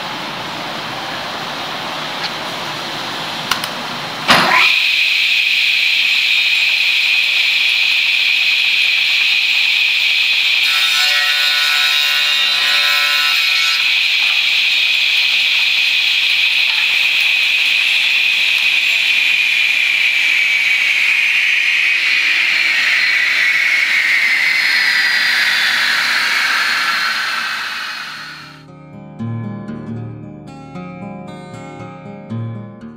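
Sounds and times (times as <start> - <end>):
saw blade spinning down: 4.4 - 28.6
rip saw whining: 4.6 - 28.6.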